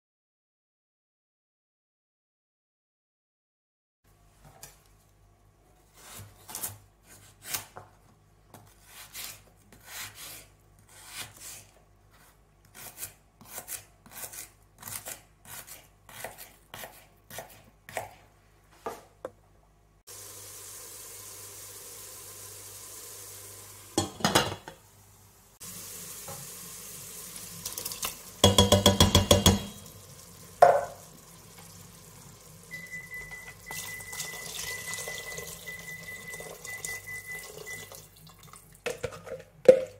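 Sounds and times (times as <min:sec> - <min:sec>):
knife chopping on plastic board: 0:12.8 - 0:18.2, 0:28.4 - 0:29.7
vegetables sizzling in a pan: 0:20.1 - 0:35.2
pan clunk: 0:24.0 - 0:24.8, 0:28.4 - 0:29.9, 0:30.6 - 0:31.0
liquid pouring into pan: 0:25.7 - 0:32.4, 0:33.6 - 0:39.4.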